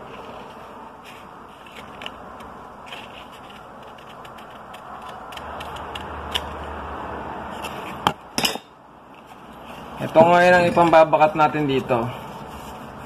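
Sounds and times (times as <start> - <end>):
scissors snipping paper: 1.7 - 6.6.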